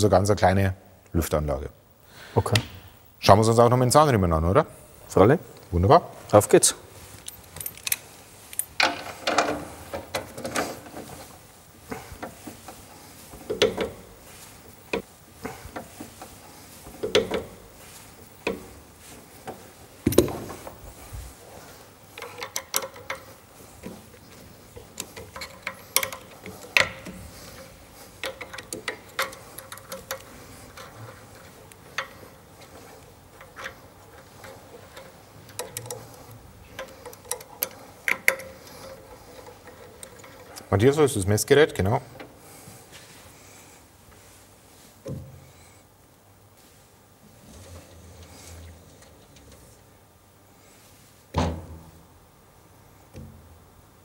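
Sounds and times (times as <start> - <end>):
metal parts clicking and clinking: 7.0 - 11.4, 22.1 - 41.1.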